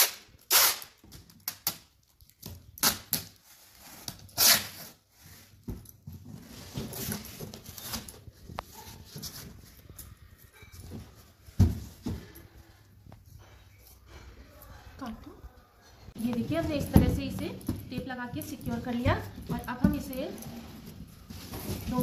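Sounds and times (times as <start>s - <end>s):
packing tape ripping: 0.0s - 5.0s
tape rustling: 0.0s - 14.0s.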